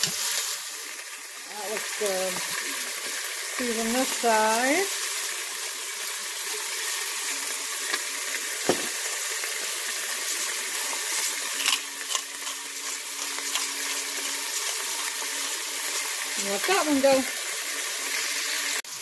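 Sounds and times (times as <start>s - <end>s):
meat sizzling in a pot: 0.0s - 19.0s
knock: 8.6s - 8.9s
seasoning grinder clicks: 11.1s - 14.8s.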